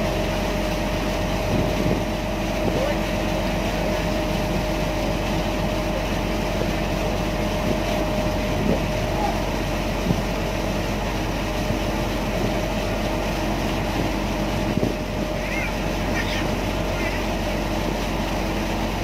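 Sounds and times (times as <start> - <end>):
ferry engine droning: 0.0 - 19.0.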